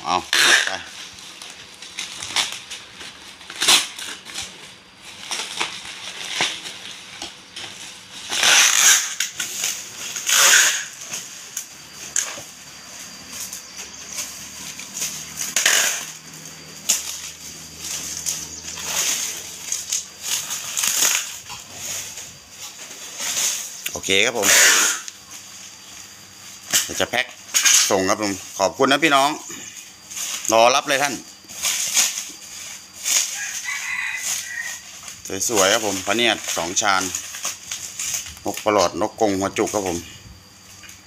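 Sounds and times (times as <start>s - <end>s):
bubble wrap crinkling: 0.1s - 24.1s, 29.8s - 38.8s
packing tape ripping from dispenser: 0.3s - 12.5s, 16.8s - 25.2s, 31.5s - 38.6s.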